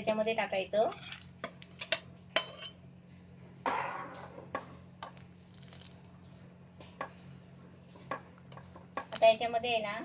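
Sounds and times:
metal spoon clinking in pan: 0:00.9 - 0:02.8.

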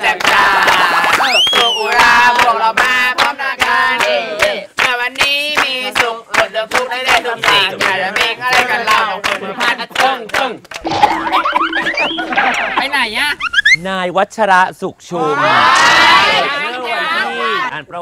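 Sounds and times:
sharp claps: 0:00.0 - 0:11.0
people shouting and singing: 0:15.2 - 0:17.7.

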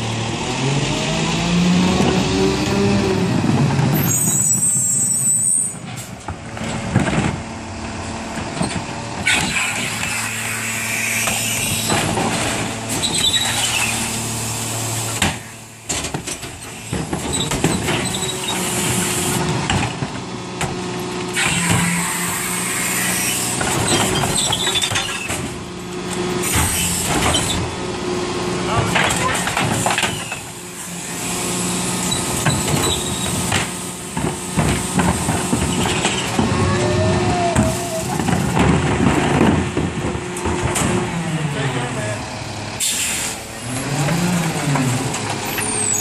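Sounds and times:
garbage truck running: 0:00.0 - 0:46.0
high brake squeal: 0:04.0 - 0:05.8, 0:13.0 - 0:14.1, 0:32.0 - 0:33.4, 0:45.5 - 0:46.0
carts knocking and clattering: 0:28.6 - 0:30.5, 0:32.3 - 0:41.2.

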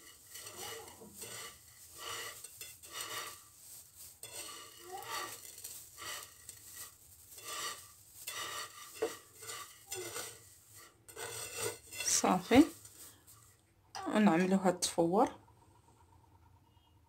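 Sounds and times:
hands rustling noodles: 0:00.0 - 0:13.6.

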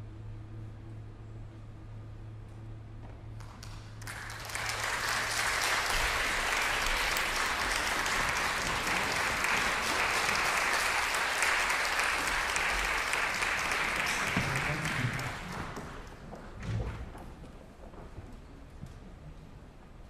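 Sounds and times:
audience clapping: 0:03.4 - 0:17.1.

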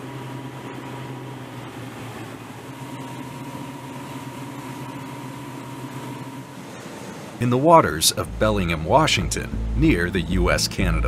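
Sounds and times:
boat motor droning: 0:00.0 - 0:11.0
thin engine whine: 0:00.0 - 0:11.0
rush of water and wind: 0:05.7 - 0:11.0.

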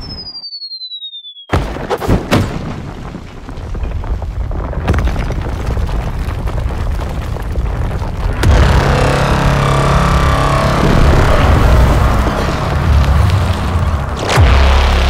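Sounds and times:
deep rumble: 0:03.7 - 0:15.0
loud blast with sharp hits: 0:08.4 - 0:15.0.

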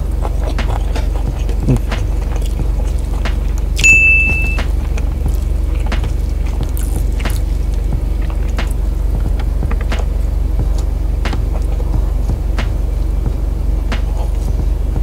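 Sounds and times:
wet chewing and mouth clicks: 0:00.0 - 0:11.9
high beep: 0:03.8 - 0:04.6
car engine idling: 0:04.6 - 0:15.0.

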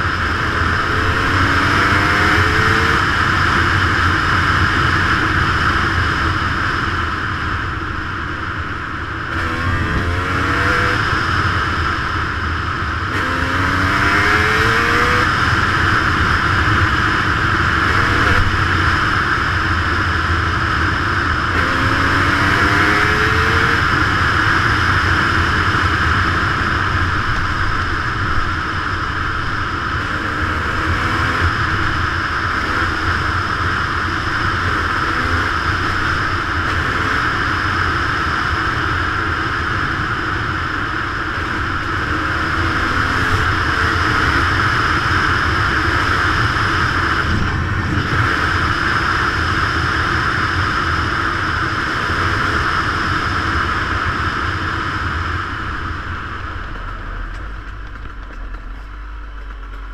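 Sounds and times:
dirt bike engine running: 0:00.0 - 0:59.9
tyres on gravel: 0:56.5 - 0:59.9.

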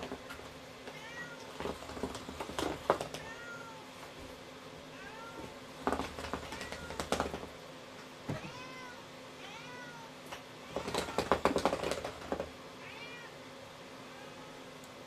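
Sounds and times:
cat mewing: 0:00.9 - 0:01.5, 0:03.0 - 0:03.9, 0:08.3 - 0:11.4, 0:12.8 - 0:13.4.

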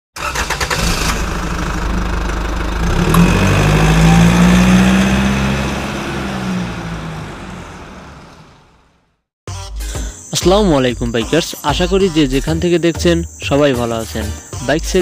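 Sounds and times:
motorcycle engine revving: 0:00.2 - 0:08.8.

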